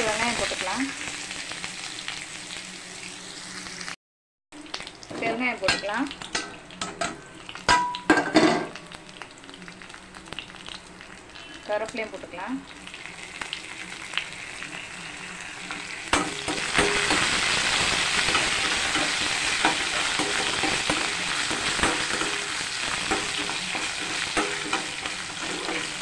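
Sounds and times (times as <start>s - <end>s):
onions sizzling in hot oil: 0.0s - 4.0s, 4.6s - 26.0s
skimmer scraping a pan: 18.2s - 26.0s.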